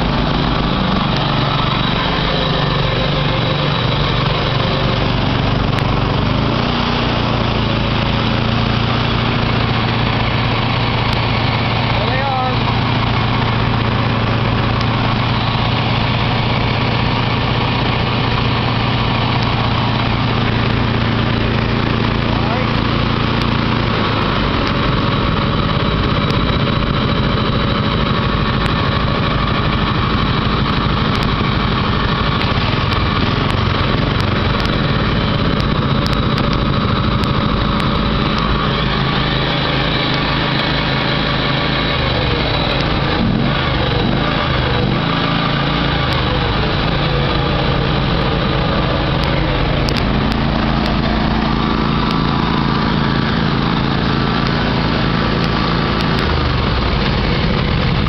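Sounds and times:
lawn tractor engines idling: 0:00.0 - 0:58.0.

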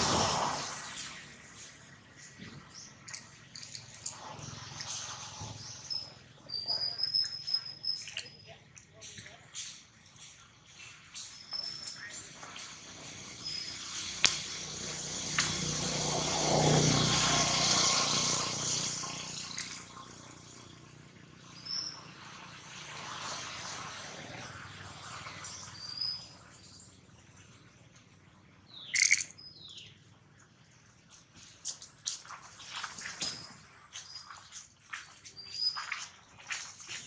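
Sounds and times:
bird chirps: 0:04.8 - 0:09.7, 0:11.1 - 0:12.6, 0:28.7 - 0:30.0.

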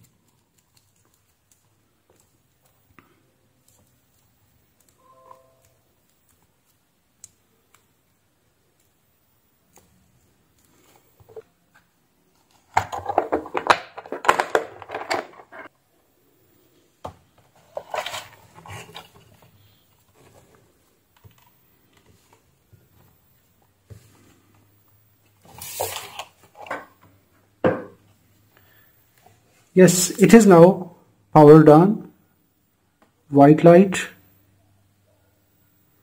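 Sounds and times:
plastic pieces clattering: 0:12.8 - 0:15.7.

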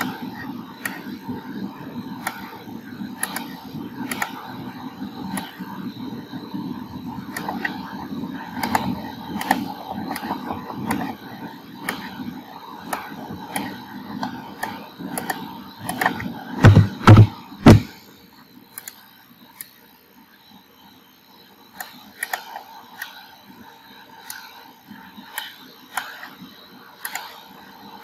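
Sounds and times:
computer mouse clicking: 0:00.0 - 0:01.2, 0:02.1 - 0:02.6, 0:03.2 - 0:04.5, 0:05.3 - 0:05.7, 0:07.3 - 0:17.9, 0:18.8 - 0:19.0, 0:21.8 - 0:23.2, 0:24.2 - 0:24.5, 0:25.2 - 0:27.7.

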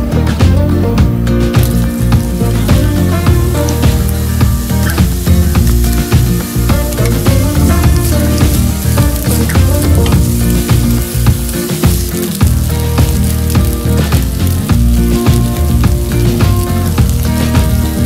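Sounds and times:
onions sizzling in oil: 0:00.1 - 0:18.0.

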